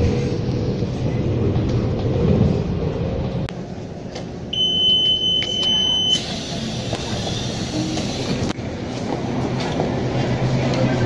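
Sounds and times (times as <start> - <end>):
train rumbling: 0.0 - 11.0
high-pitched electronic beep: 4.6 - 6.2.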